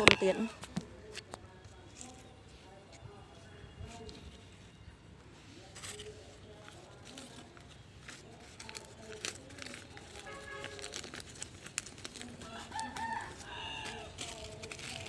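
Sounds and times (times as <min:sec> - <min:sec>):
banana leaf tearing and crackling: 0:06.9 - 0:15.0.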